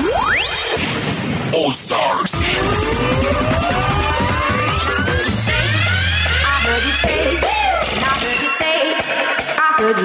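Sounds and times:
electronic dance music: 0.0 - 10.0
rising sweep effects: 2.3 - 8.7.

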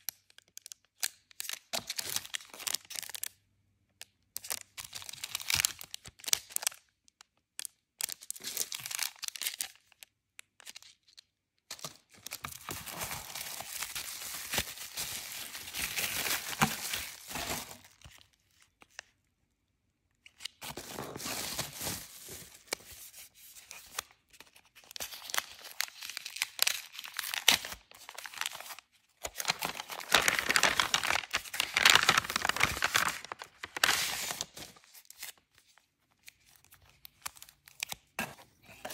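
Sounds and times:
plastic packaging crinkling: 10.6 - 19.1, 20.4 - 23.1, 24.7 - 35.6
paper bag crinkling: 29.4 - 34.8.

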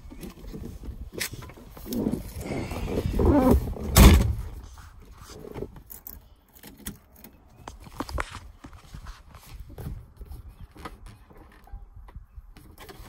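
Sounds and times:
car door creak: 1.2 - 4.6
car door thud: 3.8 - 4.5.

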